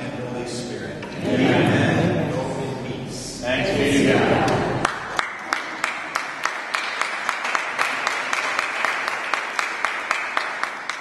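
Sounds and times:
congregation applauding: 4.8s - 11.0s
person clapping close by: 4.8s - 11.0s.

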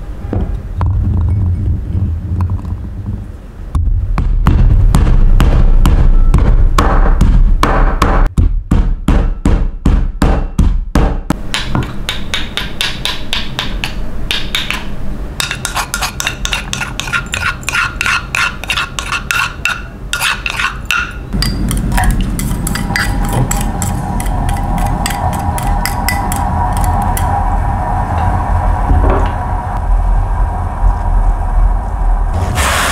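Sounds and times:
pestle pounding in wooden mortar: 3.8s - 26.9s.

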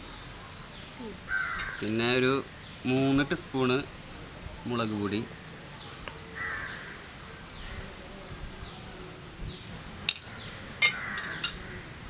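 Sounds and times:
metal spoon clinking on plate: 10.1s - 11.6s.

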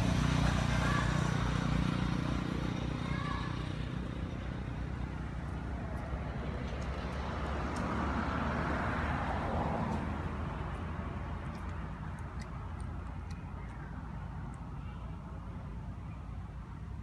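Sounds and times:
vehicle passing: 0.0s - 15.7s.

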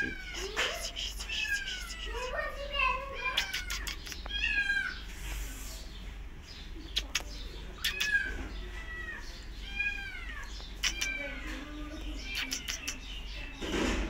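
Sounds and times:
kitten meowing: 0.0s - 2.4s, 3.2s - 5.0s, 7.8s - 13.1s.

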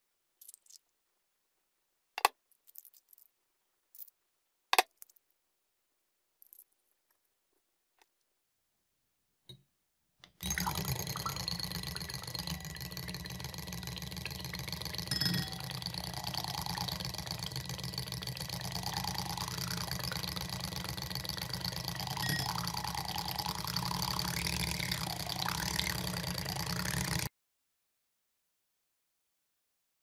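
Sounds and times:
hand mixer motor humming: 10.4s - 27.3s
whisk spinning in glass bowl: 10.4s - 27.3s.

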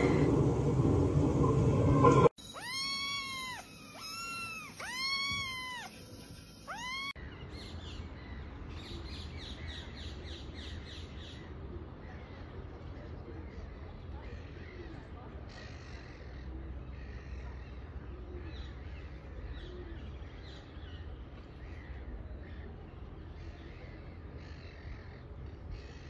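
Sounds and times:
loud rumbling noise: 0.0s - 2.3s
kitten meowing: 2.4s - 7.2s.

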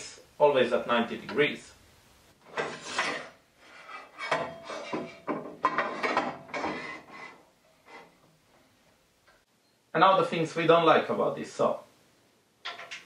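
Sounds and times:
metal fence rubbing and knocking: 2.4s - 8.2s.

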